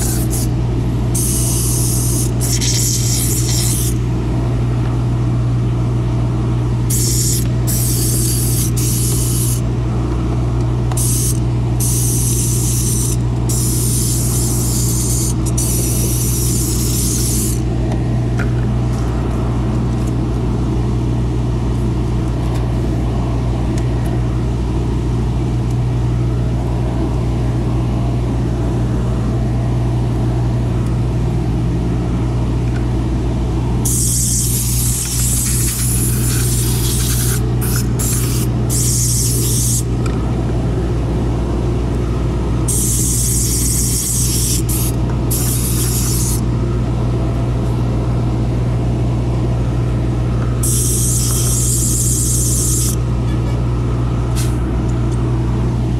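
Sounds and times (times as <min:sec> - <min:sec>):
low machine hum: 0:00.0 - 0:55.9
steam cleaner hissing: 0:33.9 - 0:39.8, 0:42.7 - 0:46.4, 0:50.6 - 0:53.0.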